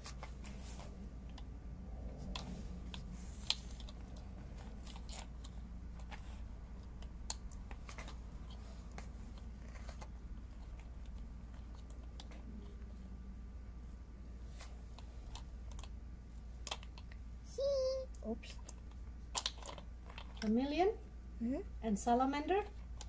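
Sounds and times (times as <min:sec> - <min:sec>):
faint low hum: 0:00.0 - 0:23.0
plastic toys clicking and tapping: 0:16.6 - 0:17.2, 0:18.5 - 0:20.5.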